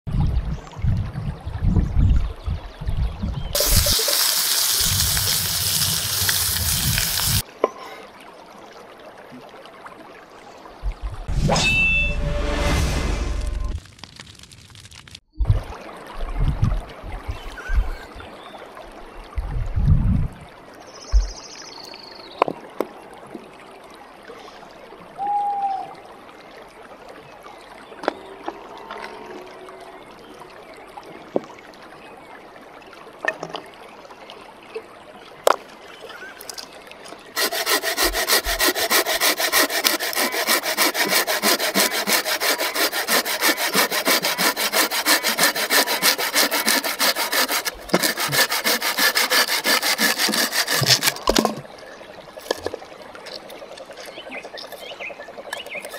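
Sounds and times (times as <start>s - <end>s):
saw cutting wooden branch: 37.4s - 51.6s
stones knocking: 50.7s - 51.7s.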